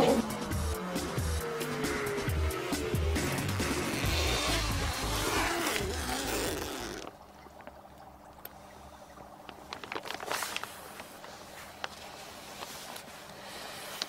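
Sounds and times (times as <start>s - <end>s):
zip pulled open: 0.0s - 0.3s, 3.6s - 7.1s
music: 0.0s - 6.6s
bag rustling: 4.5s - 7.1s, 9.6s - 13.1s.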